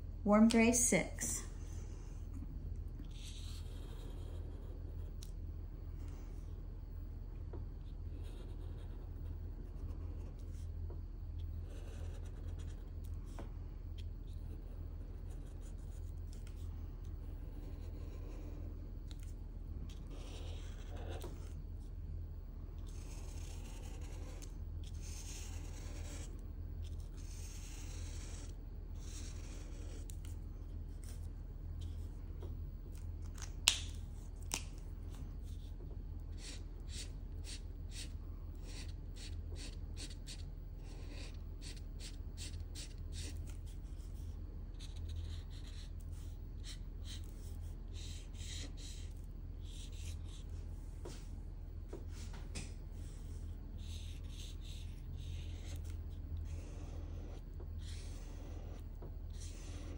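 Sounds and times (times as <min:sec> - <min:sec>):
steady low hum: 0:00.0 - 0:59.9
marker rubbing on paper: 0:11.6 - 0:12.9, 0:19.9 - 0:21.5, 0:22.9 - 0:26.3, 0:26.9 - 0:30.2, 0:36.3 - 0:50.5, 0:53.0 - 0:59.9.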